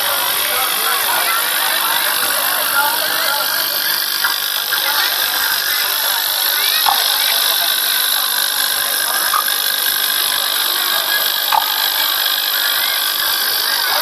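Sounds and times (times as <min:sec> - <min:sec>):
loud steady hissing din: 0:00.0 - 0:14.0.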